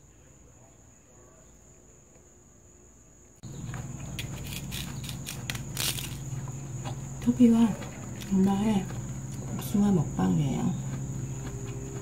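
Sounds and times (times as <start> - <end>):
low hum: 2.8 - 12.0
rabbit nibbling: 3.4 - 12.0.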